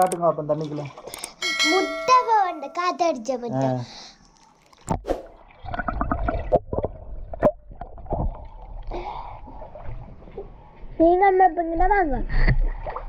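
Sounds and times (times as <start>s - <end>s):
water sloshing and gurgling: 0.0s - 1.4s, 4.4s - 13.0s.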